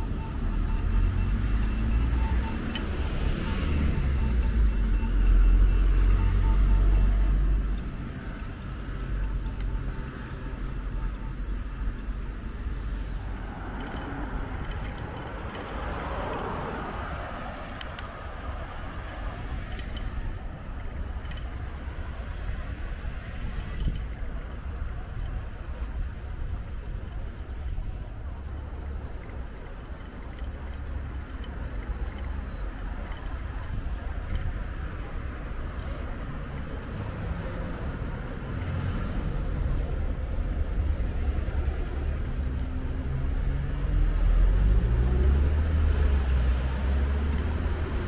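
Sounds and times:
cars going by: 0.0 - 48.0
vehicle passing with low rumble: 11.4 - 48.0.

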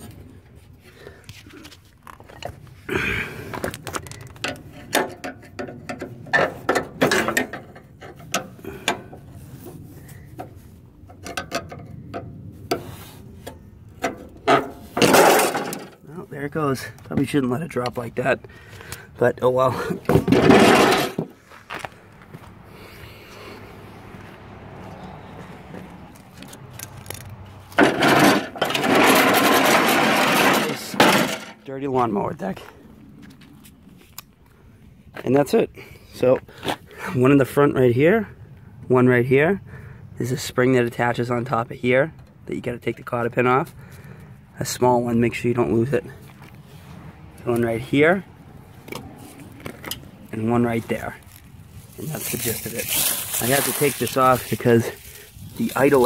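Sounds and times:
metal deck scraping on asphalt: 3.4 - 16.0, 19.7 - 32.7.

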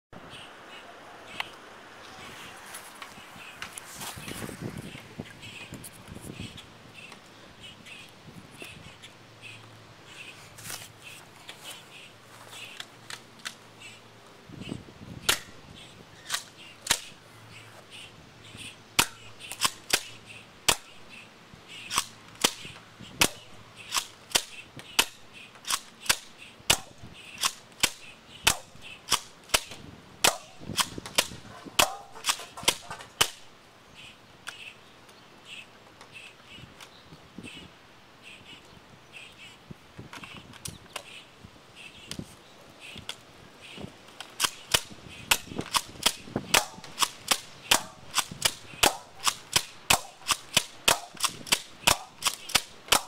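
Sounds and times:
airsoft shotgun pops: 15.2 - 15.5, 21.9 - 33.4, 44.4 - 53.0.

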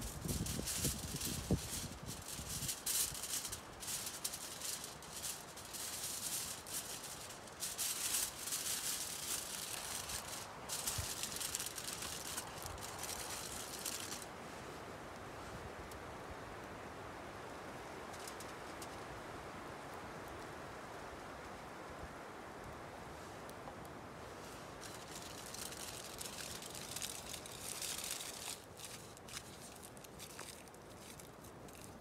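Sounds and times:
aluminium foil crinkling: 0.0 - 14.3, 18.1 - 18.9, 24.5 - 32.0.

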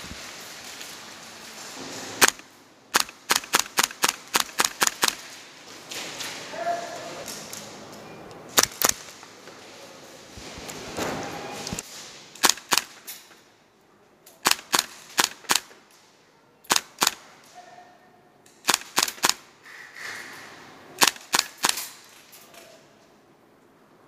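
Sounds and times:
airsoft rifle shots: 2.2 - 5.4, 8.6 - 9.2, 12.4 - 13.2, 14.4 - 15.8, 16.7 - 17.4, 18.6 - 19.5, 21.0 - 22.0.

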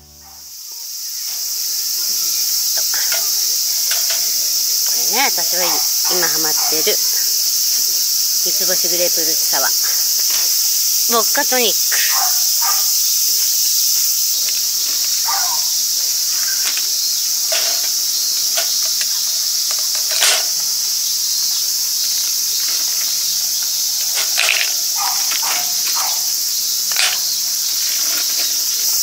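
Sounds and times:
shrill insect chorus: 0.0 - 29.0
dog barking: 0.2 - 0.5, 6.0 - 7.1, 12.0 - 13.0, 15.2 - 15.8, 25.0 - 26.3.

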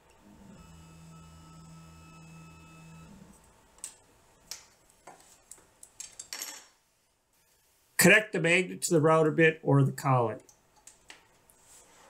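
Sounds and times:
motorized router lift humming: 0.1 - 3.4.

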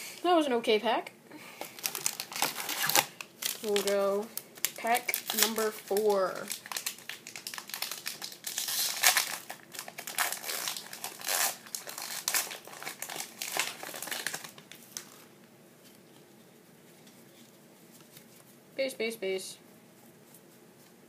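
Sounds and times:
foil wrapper tearing and crinkling: 1.6 - 15.3.

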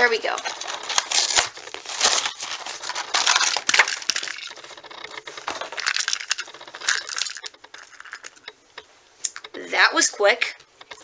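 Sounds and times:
packaging rustling: 0.0 - 8.5.

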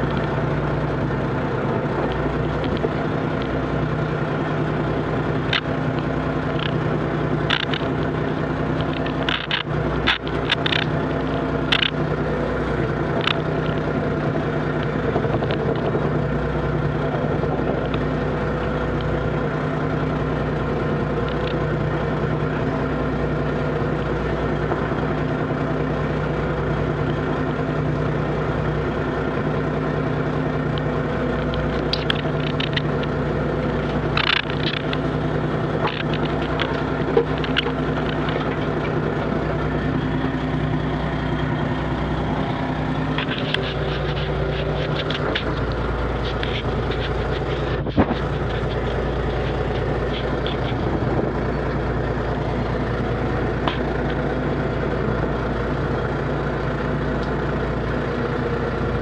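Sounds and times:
gear clicks and knocks: 0.0 - 19.2, 20.8 - 22.3, 30.6 - 54.7
boat engine and net hauler drone: 0.0 - 59.0.

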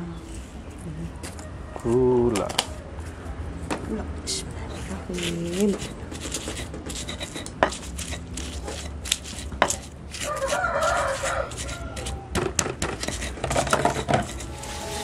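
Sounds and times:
rough scratchy grinding: 4.8 - 15.0
stone pestle knocking in mortar: 5.7 - 14.4.

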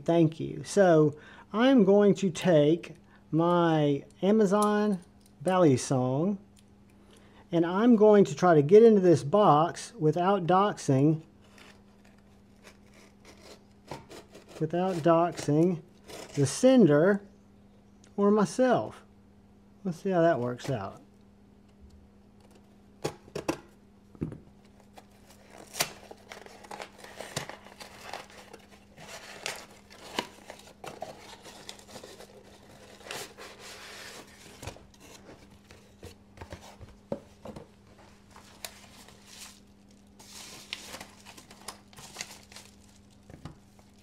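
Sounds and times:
paper rustling: 24.7 - 44.0.

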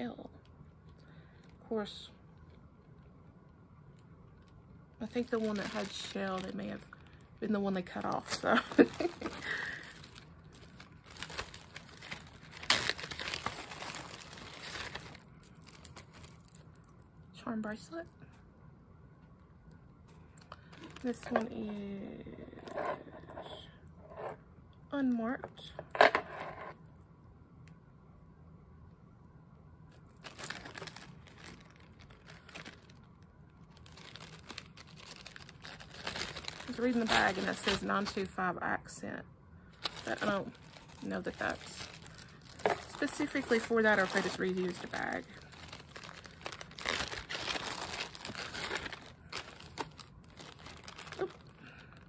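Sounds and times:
plastic bags crinkling and rustling: 4.3 - 16.6, 20.4 - 21.8, 30.0 - 38.4, 39.7 - 52.0.

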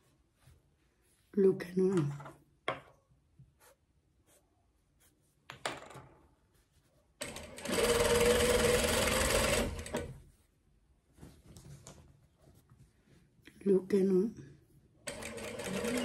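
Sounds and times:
sewing machine stitching: 7.2 - 10.2, 15.1 - 16.0
fabric rustling: 10.2 - 13.4.

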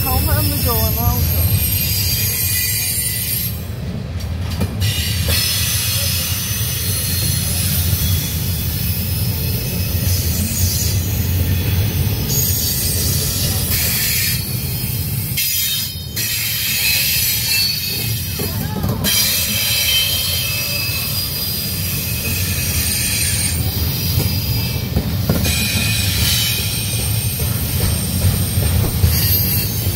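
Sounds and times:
steel wheels rumbling on rail: 0.0 - 29.9
high-pitched wheel squeal: 0.7 - 3.6.

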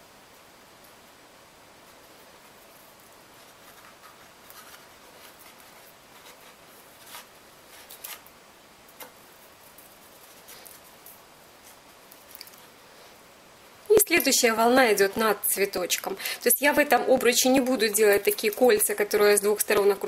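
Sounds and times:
twig rustling on wire frame: 1.8 - 13.2.

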